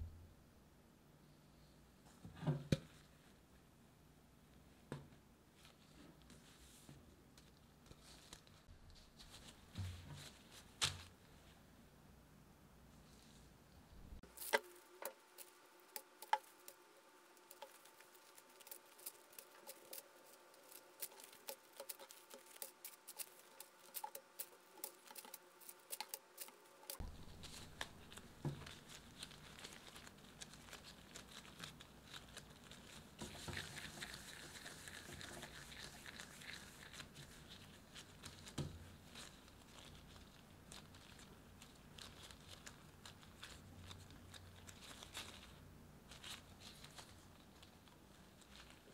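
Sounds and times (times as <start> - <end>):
gloves rustling: 5.5 - 11.7, 14.2 - 48.9.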